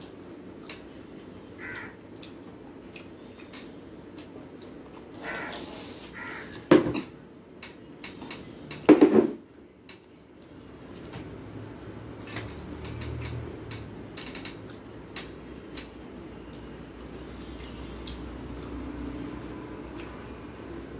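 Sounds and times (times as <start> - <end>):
soft chewing: 0.0 - 5.1, 9.8 - 20.9
loud harsh calls: 5.1 - 6.7.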